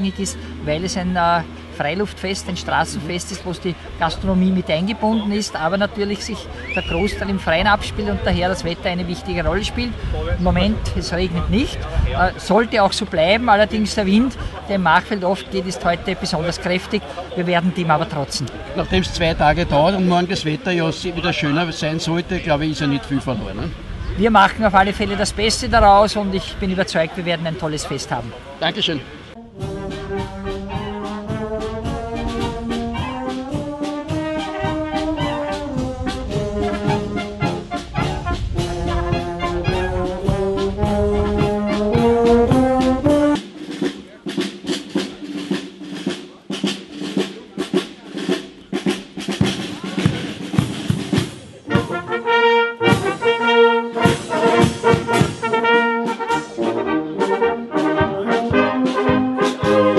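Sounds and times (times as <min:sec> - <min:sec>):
marching brass band playing: 0:00.0 - 0:59.9
drum strokes: 0:29.3 - 0:59.9.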